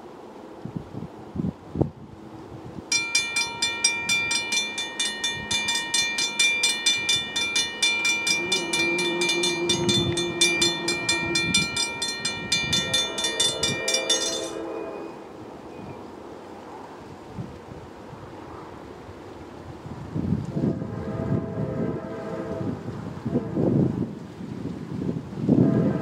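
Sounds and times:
steady low tone: 2.9 - 15.3
railroad crossing bell ringing: 2.9 - 15.9.

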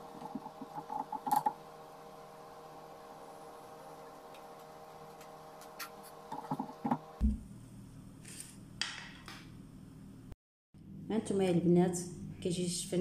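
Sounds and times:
hot oil frying dough: 0.0 - 7.2.

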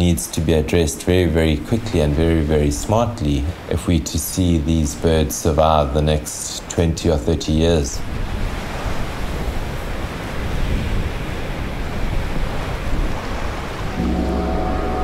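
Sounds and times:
sea surf washing ashore: 0.0 - 15.0
wind on microphone: 8.0 - 15.0
music with sustained tones: 14.0 - 15.0.

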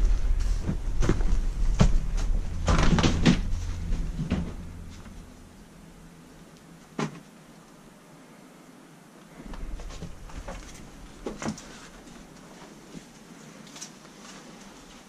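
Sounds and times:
low rumble: 0.0 - 7.0, 9.4 - 12.8
junk being handled and shifted: 9.4 - 14.0.

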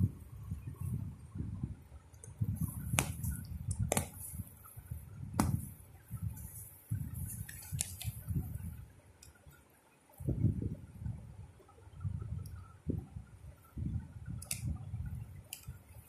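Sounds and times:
sharp clicks: 2.9 - 4.2, 14.4 - 14.7.

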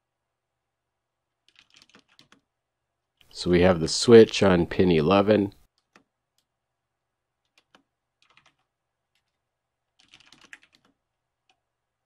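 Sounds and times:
faint computer keyboard typing: 1.4 - 2.5, 5.6 - 6.5, 7.4 - 11.7.

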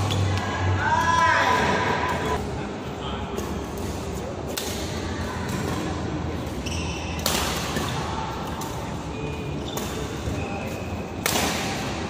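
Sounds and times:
shoe squeaks on court floor: 6.5 - 7.2, 9.1 - 10.9
rackets striking shuttlecock: 7.1 - 9.0, 11.2 - 12.0.

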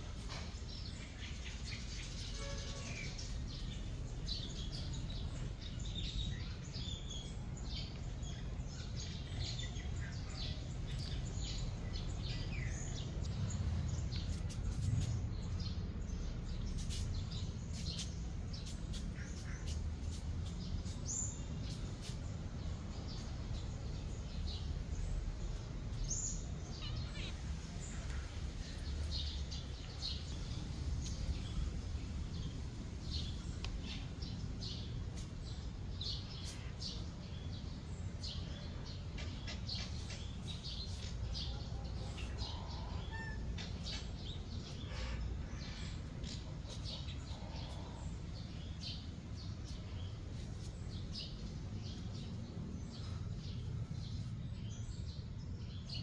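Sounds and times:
small birds chirping: 0.0 - 56.0
steady low rumble: 39.8 - 56.0.

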